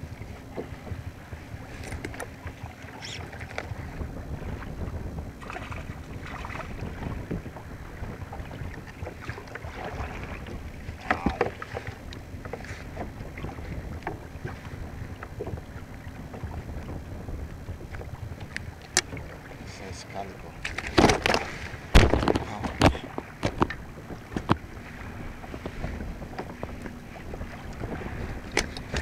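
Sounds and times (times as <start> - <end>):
water moving around kayak: 0.0 - 29.0
wind rumbling on microphone: 0.0 - 29.0
handling knocks and rustles: 20.6 - 24.6.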